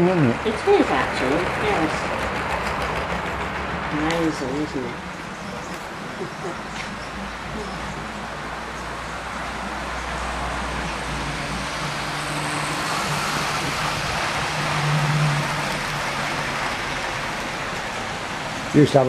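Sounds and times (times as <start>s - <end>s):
model train whirring on track: 0.0s - 19.0s.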